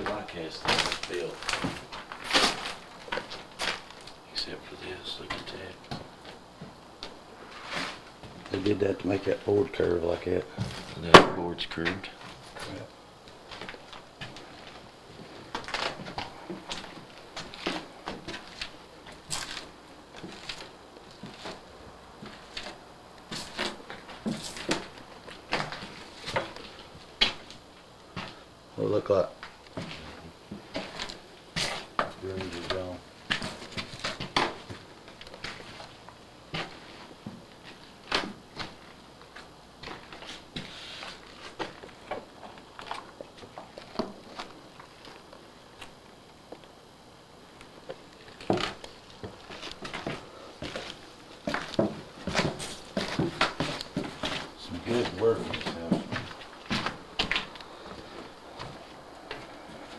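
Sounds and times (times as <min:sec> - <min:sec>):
footsteps on wooden stairs: 0:48.4 - 0:59.9.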